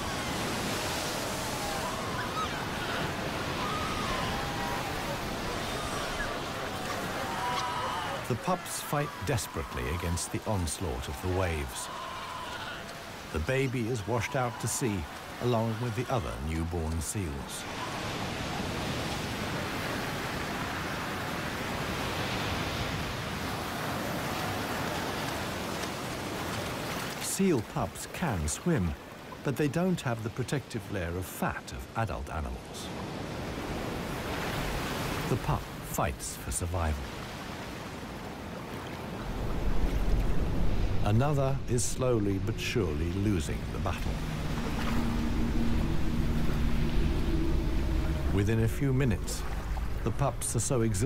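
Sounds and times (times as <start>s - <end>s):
ocean surf breaking: 0.0s - 51.0s
seal pups calling: 1.6s - 8.3s
surf breaking: 38.6s - 51.0s.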